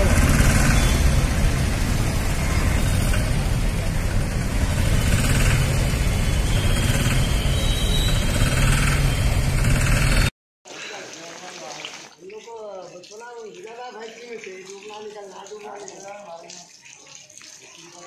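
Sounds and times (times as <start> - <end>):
street traffic: 0.0 - 10.3.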